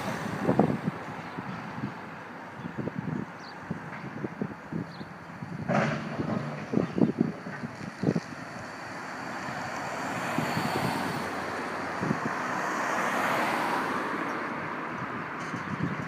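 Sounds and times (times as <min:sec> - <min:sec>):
cars driving past: 0:00.0 - 0:03.2, 0:05.4 - 0:16.0.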